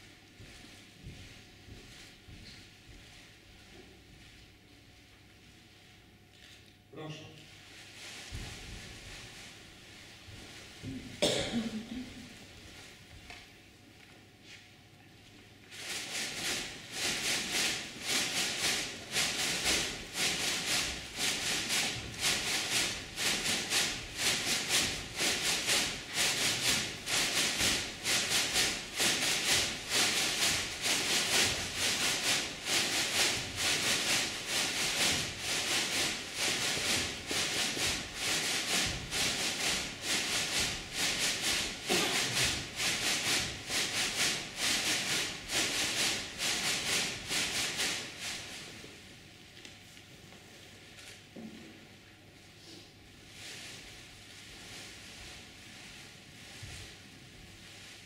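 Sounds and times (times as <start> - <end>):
rhythmic swishing: 15.8 - 48.7.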